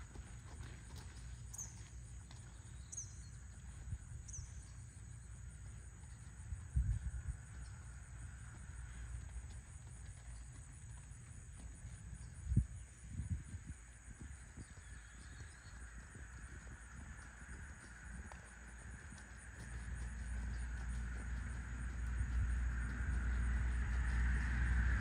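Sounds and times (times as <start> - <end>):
insects trilling: 1.4 - 25.0
low rumble: 2.4 - 25.0
bird chirps: 2.6 - 3.4.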